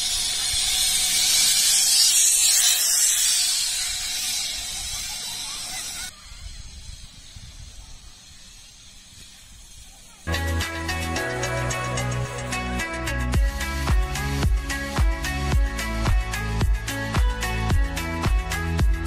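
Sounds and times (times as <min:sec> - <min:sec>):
zip line pulleys hissing on cable: 0:00.0 - 0:19.0.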